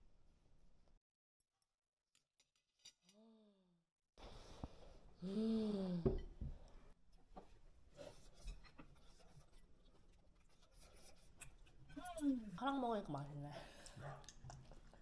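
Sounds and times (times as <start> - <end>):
chewing: 8.7 - 12.4, 13.7 - 15.0.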